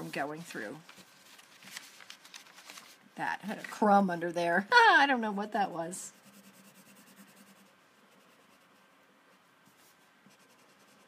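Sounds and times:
marker scratching on paper: 6.1 - 8.9, 9.6 - 11.0.

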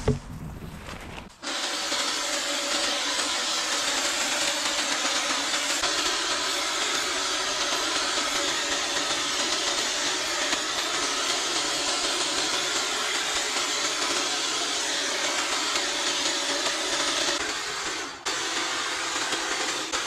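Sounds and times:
small petrol engine trimmer running: 1.0 - 20.0.

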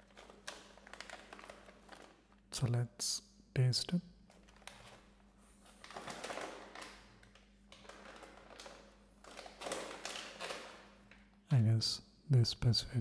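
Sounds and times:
snack bag crinkling: 0.0 - 2.4, 4.3 - 11.4.

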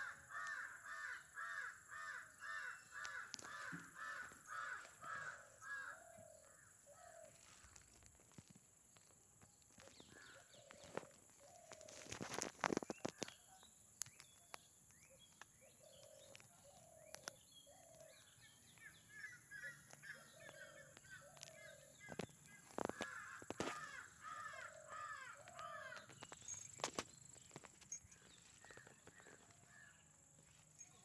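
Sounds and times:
crows cawing: 0.0 - 7.8, 19.2 - 26.3
bird chirps: 12.6 - 31.0.

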